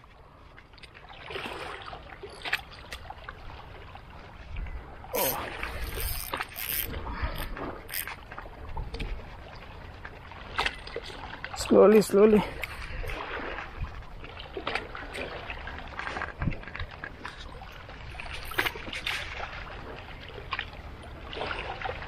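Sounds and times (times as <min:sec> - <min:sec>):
water sloshing along shore: 0:00.0 - 0:22.0
wind rumble on microphone: 0:03.4 - 0:11.5, 0:12.5 - 0:22.0.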